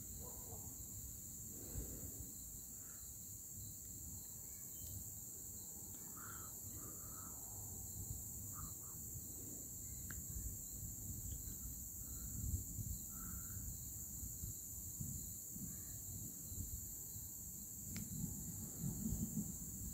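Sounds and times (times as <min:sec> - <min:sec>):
faint chirps: 0:00.0 - 0:14.5
crickets shrilling: 0:00.0 - 0:19.9.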